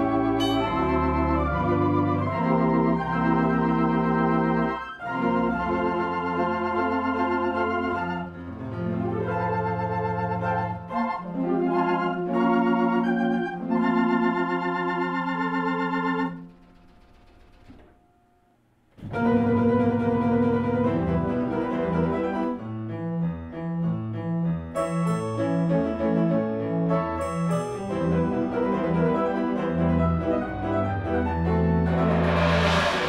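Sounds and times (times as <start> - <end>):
organ playing sustained chords: 0.0 - 8.4.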